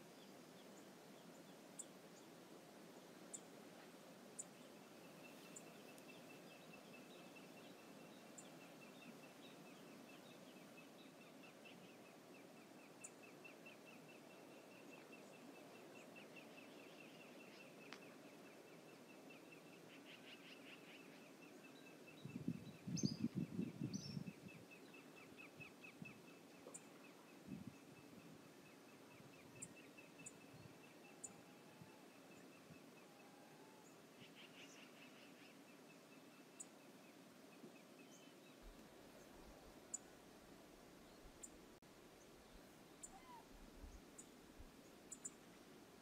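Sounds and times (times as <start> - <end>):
faint high ticks: 17.8 - 18.1.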